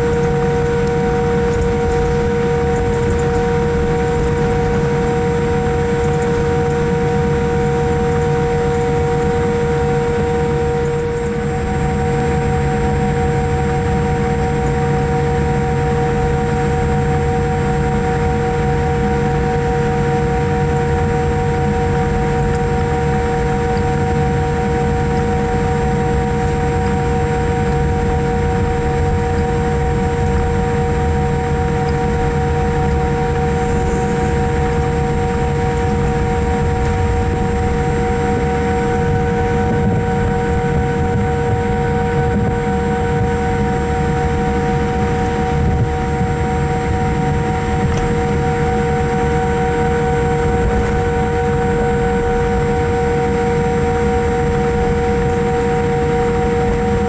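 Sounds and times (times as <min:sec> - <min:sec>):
airliner cabin rumble and hiss: 0:00.0 - 0:57.0
steady whining tones: 0:00.0 - 0:57.0.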